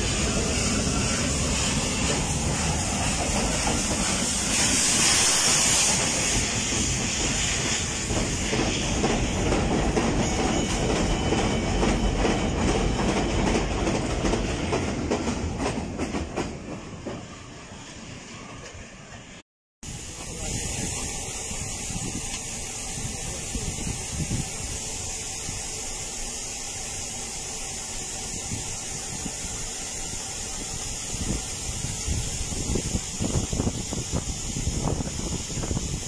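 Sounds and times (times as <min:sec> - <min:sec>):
hiss: 0:00.0 - 0:11.2, 0:19.8 - 0:36.0.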